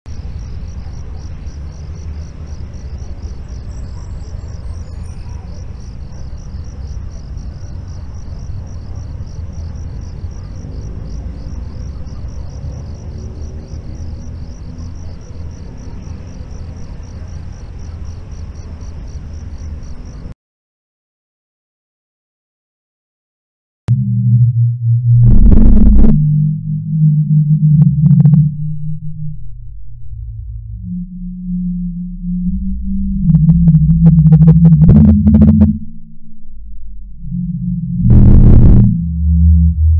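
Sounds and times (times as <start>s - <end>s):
steady low rumble: 0.1s - 4.9s, 23.9s - 39.9s
insects chirping: 0.1s - 20.3s.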